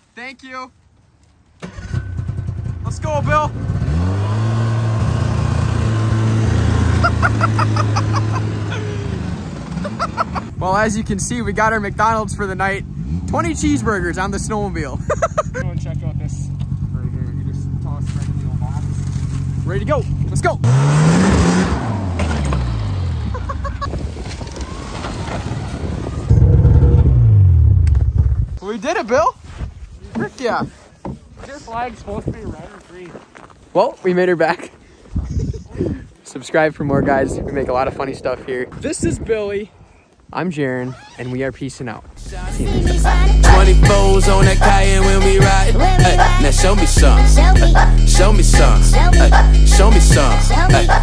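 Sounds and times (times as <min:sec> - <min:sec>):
snowmobile engine running: 0:02.2 - 0:28.4, 0:42.2 - 0:51.0.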